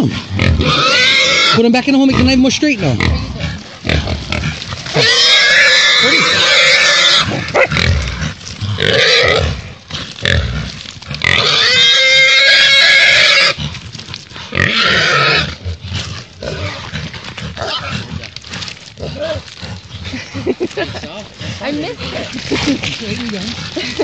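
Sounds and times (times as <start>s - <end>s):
pig squealing loudly: 0.0s - 8.2s, 8.8s - 9.6s, 11.2s - 13.6s, 14.5s - 18.2s
pig grunting: 0.0s - 24.0s.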